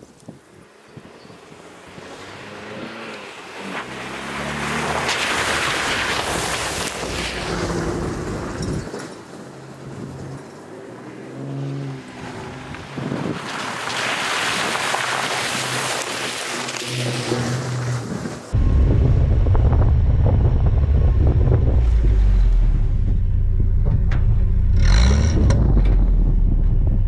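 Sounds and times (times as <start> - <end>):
water and mud splashing: 2.0 - 8.8, 12.0 - 23.0
truck engine revving: 16.8 - 27.0.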